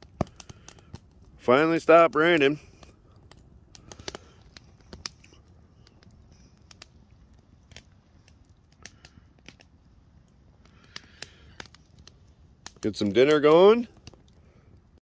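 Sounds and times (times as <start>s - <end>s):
low steady background noise: 0.0s - 15.0s
sharp clicks and ticks: 1.8s - 6.9s.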